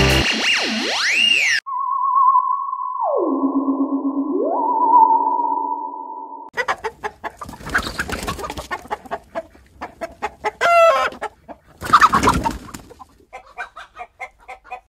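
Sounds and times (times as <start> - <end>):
chicken clucking and squawking: 6.6 - 14.9.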